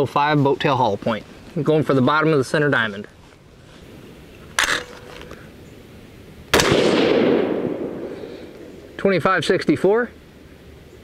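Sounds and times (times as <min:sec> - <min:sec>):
rifle shot with echo: 0:06.5 - 0:08.9.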